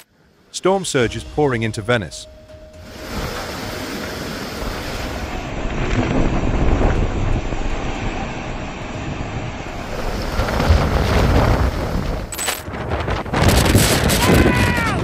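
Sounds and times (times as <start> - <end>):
rushing floodwater: 2.8 - 12.8
wind buffeting microphone: 2.8 - 15.0.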